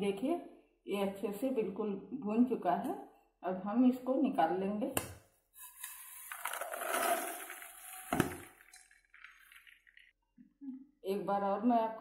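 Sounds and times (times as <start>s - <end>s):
popcorn pouring into plastic bowl: 5.6s - 10.1s.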